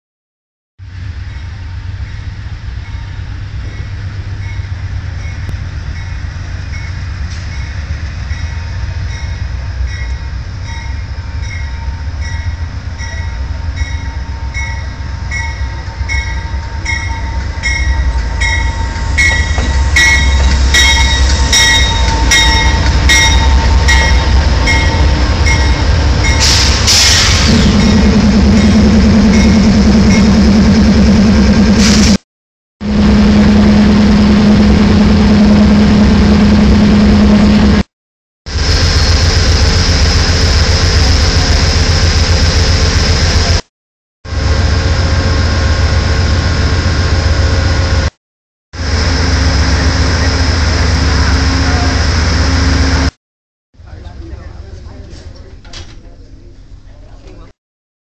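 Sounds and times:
locomotive engine hum: 0.8 - 32.2, 32.8 - 37.9, 38.5 - 43.6, 44.3 - 48.1, 48.8 - 53.2
locomotive bell ringing: 1.2 - 26.8, 27.6 - 30.6.

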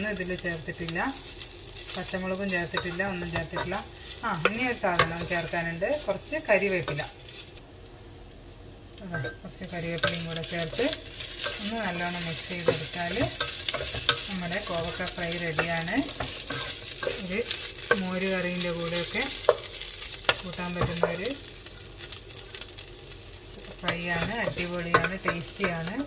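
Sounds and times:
frying sizzle: 0.0 - 26.0
spatula scraping pan: 9.2 - 21.2, 23.8 - 25.9.

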